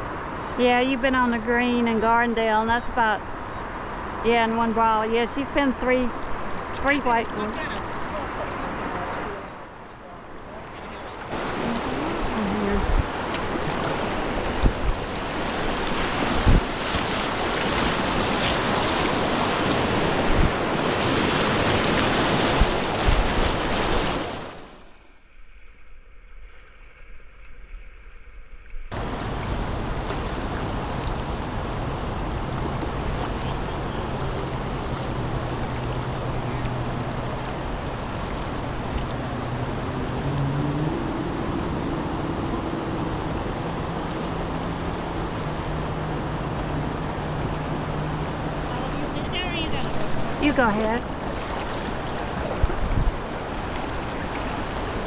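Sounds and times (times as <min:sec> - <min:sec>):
water splashing around kayak: 0:06.1 - 0:55.0
river rapids rushing: 0:06.2 - 0:24.9, 0:28.9 - 0:55.0
wind on microphone: 0:10.7 - 0:24.6, 0:49.7 - 0:55.0.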